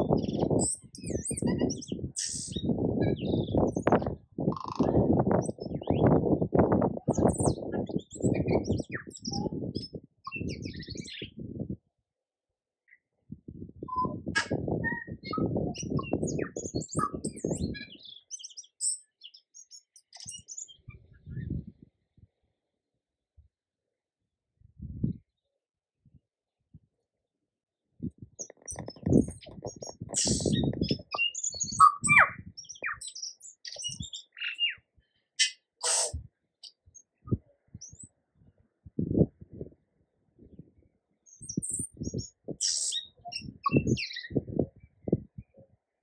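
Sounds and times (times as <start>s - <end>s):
bird singing chirps and whistles: 0.0s - 6.2s, 7.1s - 11.4s, 13.8s - 21.4s, 28.4s - 34.8s, 35.4s - 38.1s, 41.3s - 44.4s.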